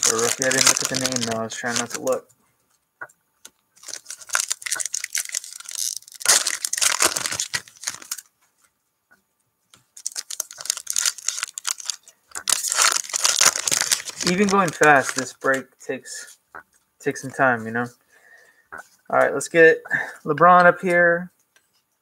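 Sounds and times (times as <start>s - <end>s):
foil wrapper crinkling and tearing: 0.0s - 2.2s, 3.8s - 8.3s, 10.0s - 15.4s.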